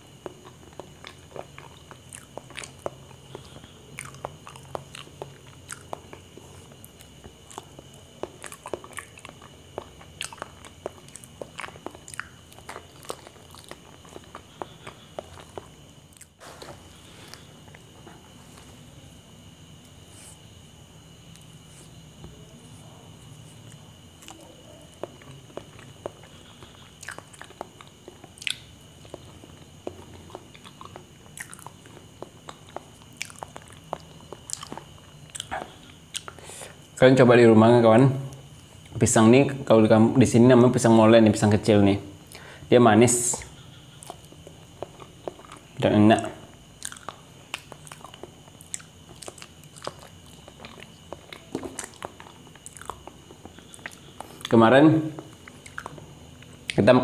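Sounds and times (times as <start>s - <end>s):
chewing with wet mouth clicks: 0.1s - 16.4s, 23.3s - 36.4s, 43.4s - 45.8s, 46.6s - 56.8s.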